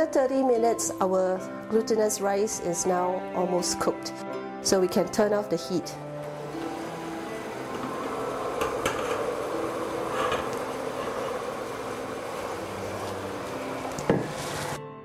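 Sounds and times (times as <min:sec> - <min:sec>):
water boiling with bubbling hiss: 0:06.2 - 0:14.8
lid knocking down: 0:07.5 - 0:14.8
glass lid clinking: 0:07.7 - 0:11.5.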